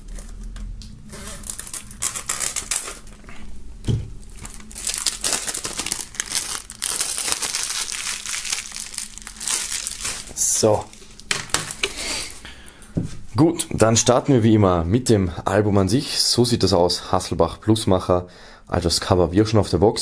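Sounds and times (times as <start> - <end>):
shrink-wrap crinkling: 0.0 - 3.3, 4.2 - 12.4.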